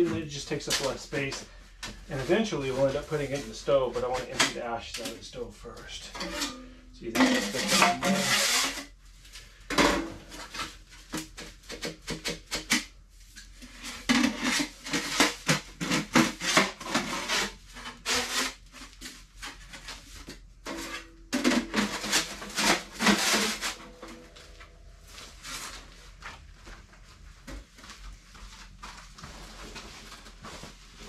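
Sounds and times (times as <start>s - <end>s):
sheet metal pipes scraping and clanking: 0.0s - 8.9s, 20.6s - 25.5s.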